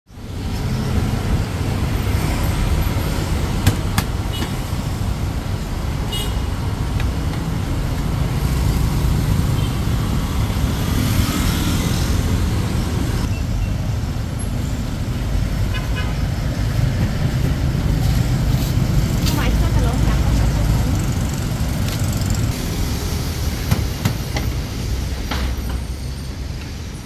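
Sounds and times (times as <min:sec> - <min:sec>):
traffic rumble: 0:00.1 - 0:27.0.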